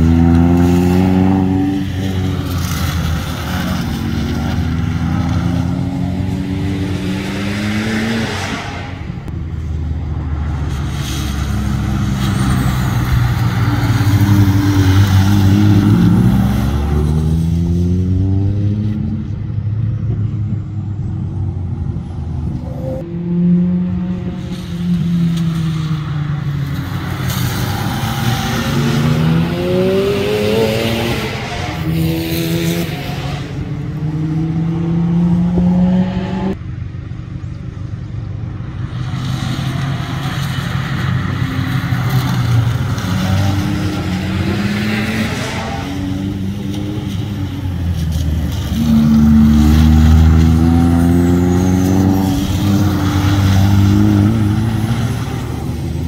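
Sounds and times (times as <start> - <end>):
cars accelerating: 0.0 - 36.6, 38.5 - 56.0
tyres hissing on wet asphalt: 7.6 - 17.4.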